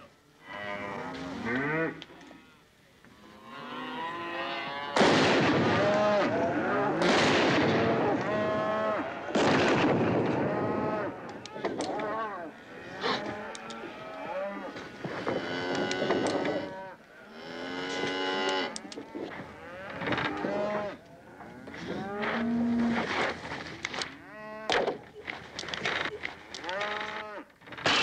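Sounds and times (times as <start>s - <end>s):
cattle lowing and bellowing: 10.3s - 23.6s.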